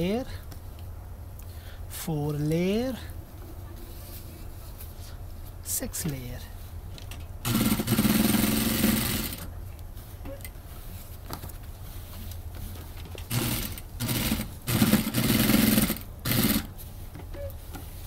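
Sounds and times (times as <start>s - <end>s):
sewing machine stitching: 7.5s - 9.5s, 13.3s - 16.7s.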